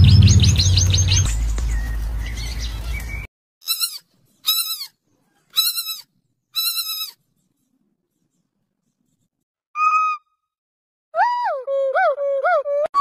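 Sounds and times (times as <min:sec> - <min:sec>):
piglet squeals: 0:03.6 - 0:07.2, 0:09.8 - 0:10.3.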